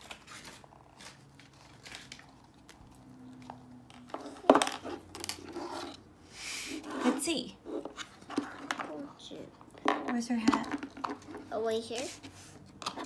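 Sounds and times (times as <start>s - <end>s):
plastic packaging rustling: 0.0s - 5.5s.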